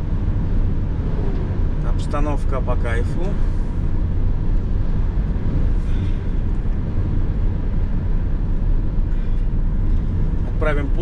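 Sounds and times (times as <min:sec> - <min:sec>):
van road and engine rumble: 0:00.0 - 0:11.0.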